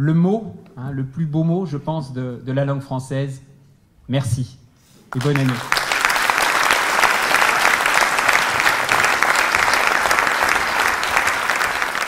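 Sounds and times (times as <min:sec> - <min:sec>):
audience applause: 0:05.2 - 0:12.0.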